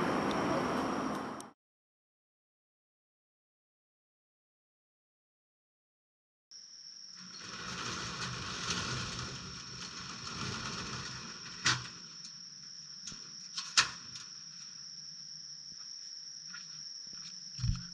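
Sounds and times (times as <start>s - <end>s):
insects trilling: 6.5s - 17.9s.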